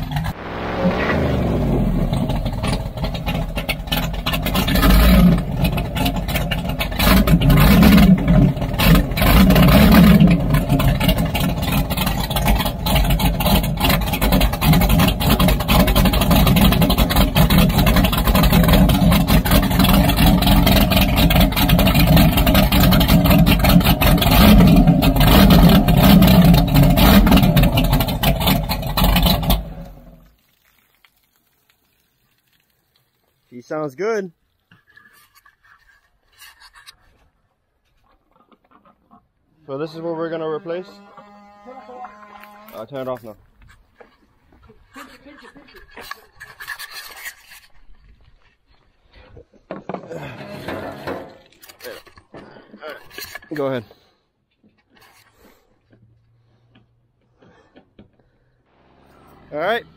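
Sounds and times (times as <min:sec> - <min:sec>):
marine engines running and revving: 0:00.0 - 0:30.2, 0:58.7 - 0:59.9
exhaust spitting water: 0:00.0 - 0:35.4.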